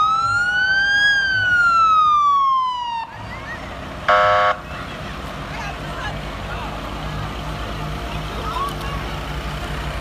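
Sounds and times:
emergency vehicle siren: 0.0 - 4.6
loud horn blast: 4.1 - 4.6.

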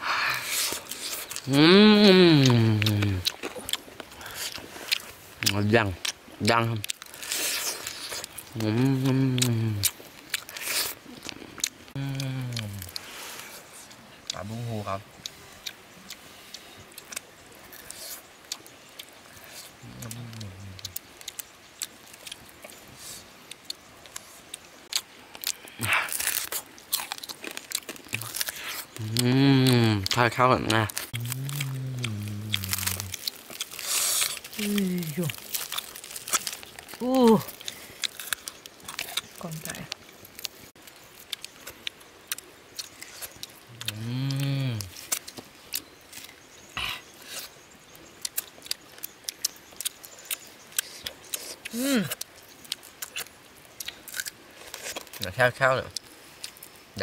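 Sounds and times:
person humming: 1.4 - 3.2, 8.6 - 9.9, 12.0 - 12.9, 19.8 - 20.9, 29.0 - 30.2, 31.2 - 33.1, 43.7 - 45.0, 51.7 - 52.2
fish being pulled apart and chewed: 23.5 - 39.7.

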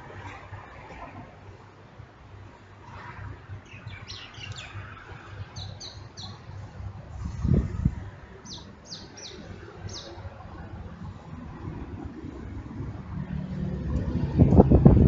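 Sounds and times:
small birds chirping: 3.6 - 6.5, 8.4 - 10.2
steady low rumble: 4.8 - 15.0.

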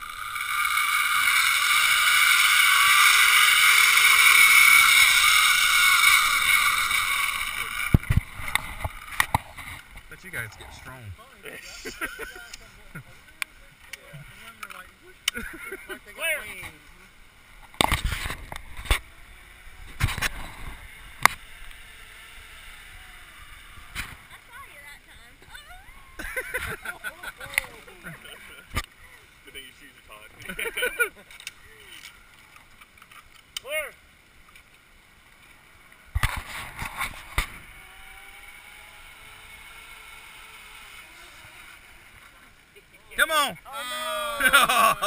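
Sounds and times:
pulley whirring along cable: 0.0 - 10.1, 36.2 - 42.3.

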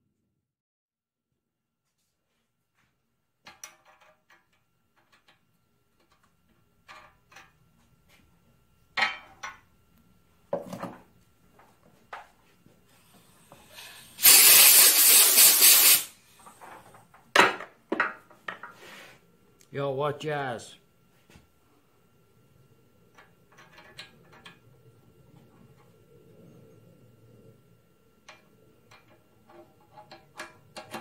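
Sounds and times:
spray hiss: 13.0 - 16.2.

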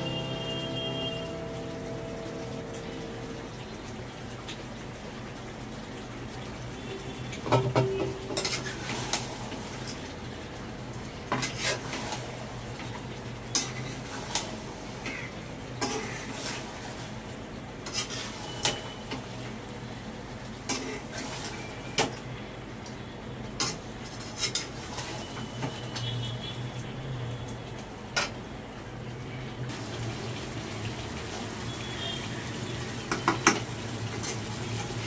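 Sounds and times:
metal spoon scraping a pan: 8.3 - 9.3, 11.3 - 12.3, 13.5 - 16.7, 17.8 - 18.9, 23.6 - 25.2, 34.1 - 34.6.

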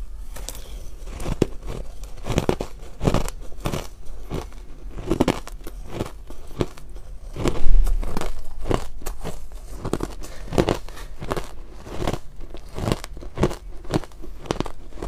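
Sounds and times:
ice crunching while chewed: 0.2 - 15.0.

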